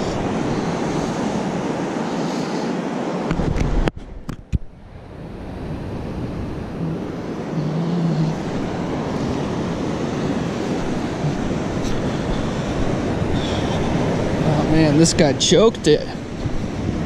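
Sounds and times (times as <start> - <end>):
surf washing: 0.0 - 4.0, 4.7 - 17.0
wind buffeting microphone: 0.0 - 17.0.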